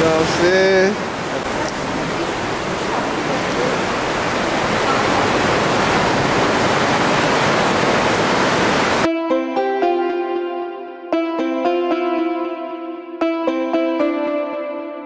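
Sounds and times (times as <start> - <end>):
ocean surf rushing in a cave: 0.0 - 9.1.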